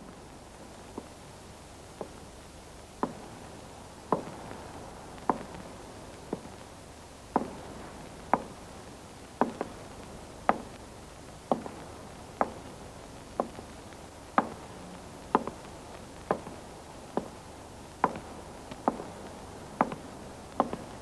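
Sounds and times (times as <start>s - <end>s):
hard-soled footsteps on pavement: 7.4s - 7.8s, 9.4s - 10.8s, 11.5s - 12.8s, 13.4s - 17.4s.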